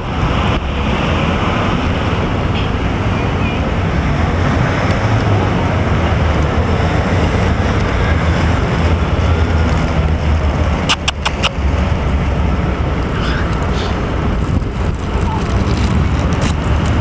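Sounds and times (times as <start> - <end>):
city traffic rumble: 0.0 - 17.0
sharp clicks: 10.9 - 11.6.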